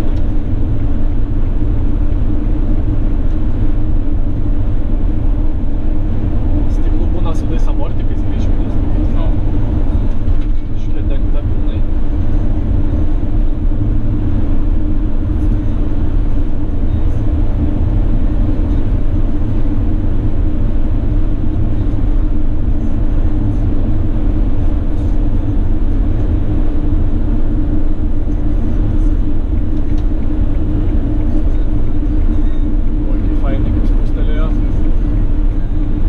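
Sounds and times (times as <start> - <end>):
diesel engine rumble: 0.0 - 36.0.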